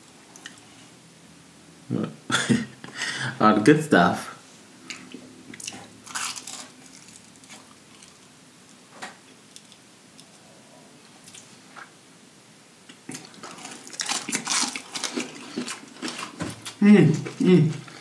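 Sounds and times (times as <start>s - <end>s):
crunchy bites and chewing: 5.5s - 8.3s, 13.0s - 18.0s.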